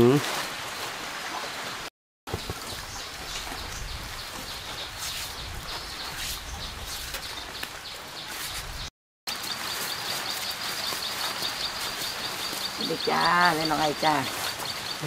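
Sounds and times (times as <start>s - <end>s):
small birds chirping: 2.3s - 15.0s.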